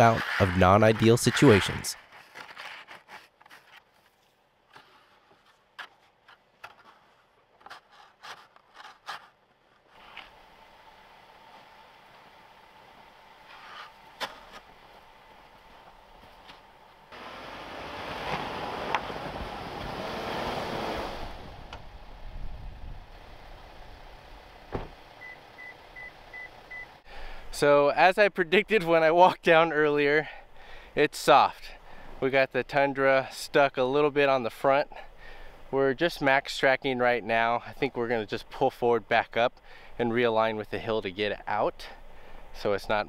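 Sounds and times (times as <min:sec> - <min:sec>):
scrapes and crunches in snow: 0:00.0 - 0:10.3
truck engine and tyres in snow: 0:00.0 - 0:27.6, 0:28.6 - 0:43.0.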